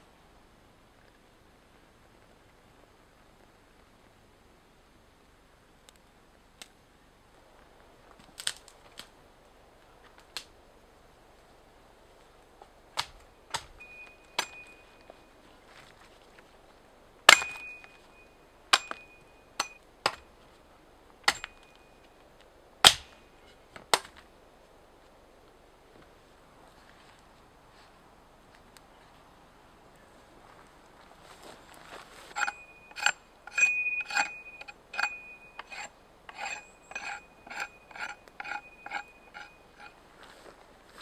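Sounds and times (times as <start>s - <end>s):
axe chopping branches: 13.0s - 14.8s, 17.3s - 18.1s, 18.7s - 20.3s, 21.2s - 21.7s, 22.8s - 23.2s, 23.8s - 24.2s.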